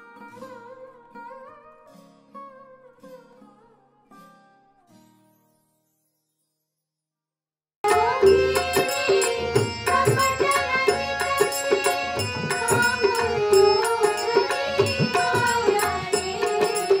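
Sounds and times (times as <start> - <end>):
women singing together: 7.9 - 17.0.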